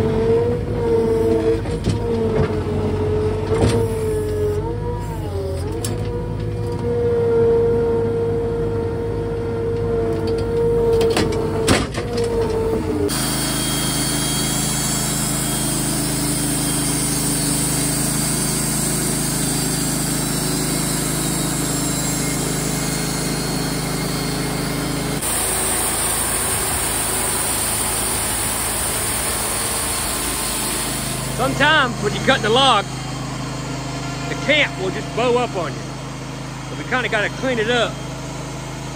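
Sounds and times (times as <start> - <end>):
sawmill engine drone: 0.0 - 38.9
steady whine: 12.2 - 38.2.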